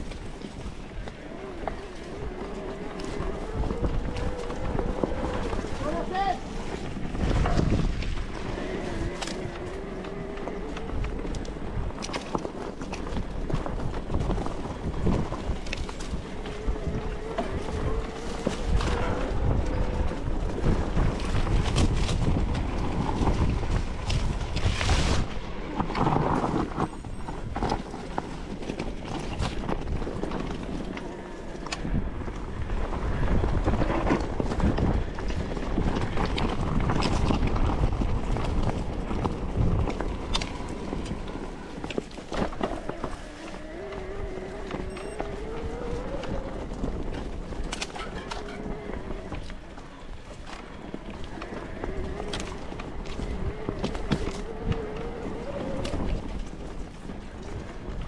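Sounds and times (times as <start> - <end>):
bike clicks and rattles: 0.0 - 58.0
wind buffeting microphone: 0.0 - 58.0
wavering motor whine: 39.7 - 57.7.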